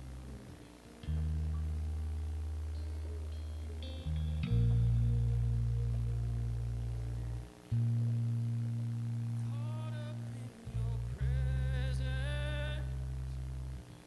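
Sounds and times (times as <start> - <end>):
person singing: 9.4 - 13.2.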